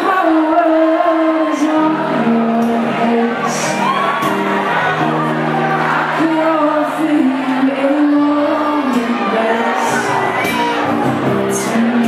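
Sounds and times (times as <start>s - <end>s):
man singing into a microphone: 0.0s - 4.0s, 6.0s - 12.0s
amplified band playing: 2.9s - 6.6s.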